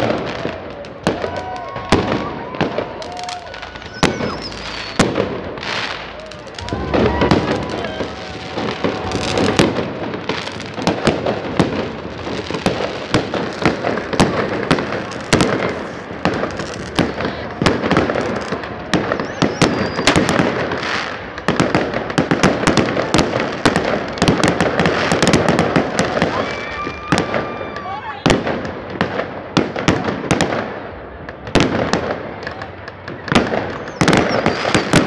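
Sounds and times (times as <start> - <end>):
fireworks bangs and crackles: 0.0 - 35.0.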